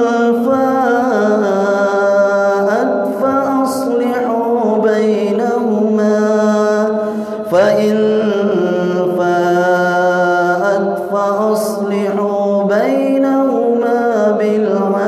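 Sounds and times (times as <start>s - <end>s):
man chanting melodically: 0.0s - 15.0s.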